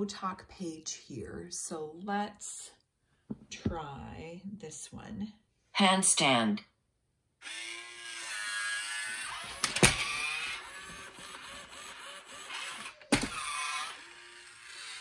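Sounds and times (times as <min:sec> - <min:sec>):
plastic body knocking on floor: 0:03.3 - 0:03.8
toy gear motors whirring: 0:07.4 - 0:15.0.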